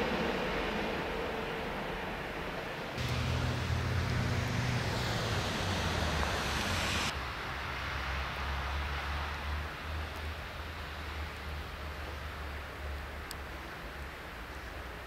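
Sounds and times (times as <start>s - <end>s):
steady outdoor hiss: 0.0s - 15.0s
low rumble: 3.0s - 7.1s.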